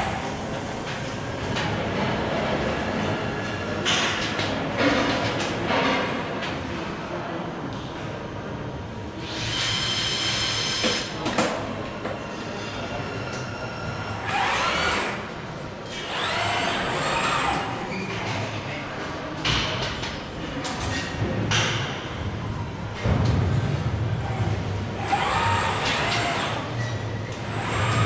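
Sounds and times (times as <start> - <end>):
steady machinery hum: 0.0 - 4.0, 21.2 - 28.0
robot arm servo whine: 13.4 - 15.2, 15.9 - 17.8, 25.0 - 28.0.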